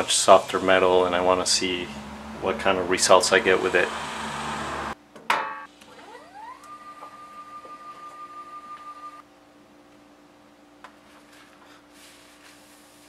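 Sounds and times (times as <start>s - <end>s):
stepper motors whining: 0.0s - 5.0s, 5.8s - 9.2s.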